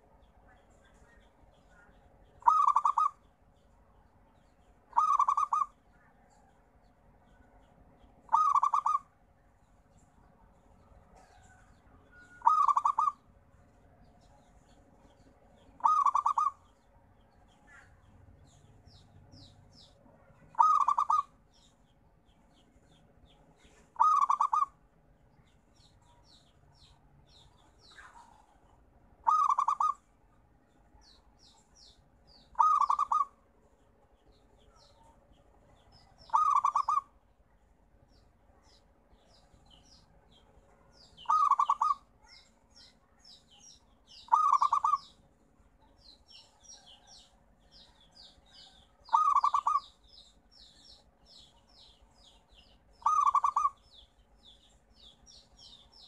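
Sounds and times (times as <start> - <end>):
faint high chirping: 0.0 - 56.0
dove cooing: 2.4 - 3.2, 4.9 - 5.7, 8.3 - 9.1, 12.4 - 13.2, 15.8 - 16.6, 20.4 - 21.3, 24.0 - 24.8, 29.2 - 30.0, 32.6 - 33.4, 36.3 - 37.1, 41.2 - 42.0, 44.3 - 45.0, 49.1 - 49.8, 53.0 - 53.8.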